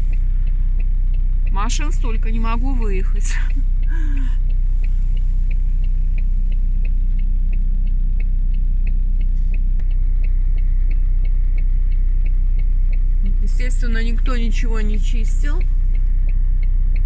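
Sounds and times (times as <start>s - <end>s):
engine and tyres rumbling: 0.0s - 17.0s
turn signal clicking: 0.0s - 17.0s.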